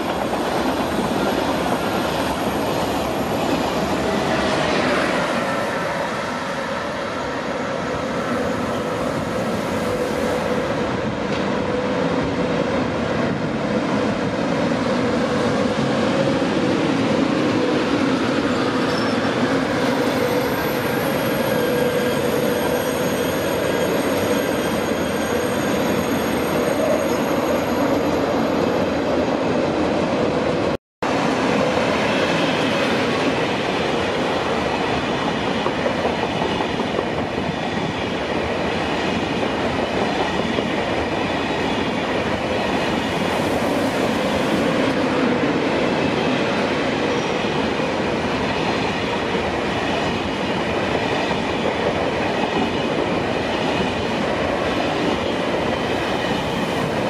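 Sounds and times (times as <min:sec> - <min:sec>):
train whining tone: 0:00.0 - 0:30.6
train wheels rumbling on rail: 0:00.0 - 0:57.0.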